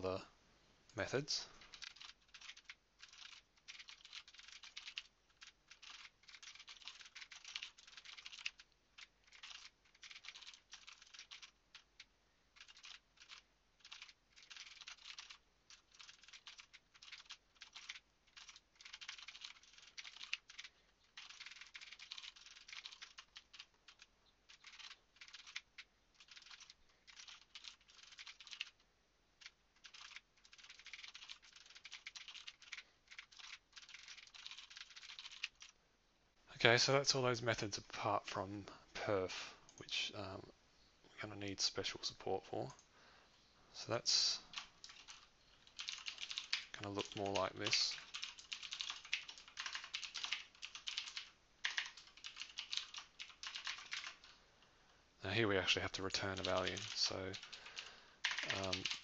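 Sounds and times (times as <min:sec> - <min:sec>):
computer keyboard typing: 0:01.6 - 0:28.8, 0:29.4 - 0:35.8, 0:44.5 - 0:54.3, 0:56.2 - 0:59.0.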